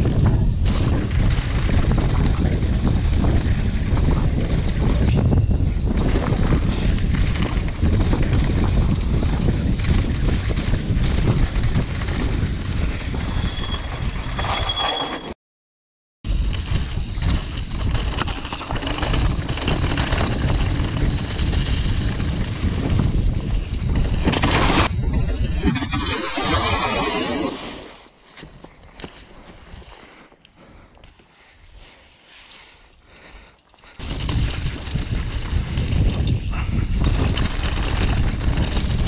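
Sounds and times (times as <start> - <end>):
wind buffeting microphone: 0.0 - 14.2, 16.3 - 25.8, 32.6 - 39.0
mountain bike tyres on trail: 0.0 - 14.9, 16.3 - 25.0, 27.4 - 39.0.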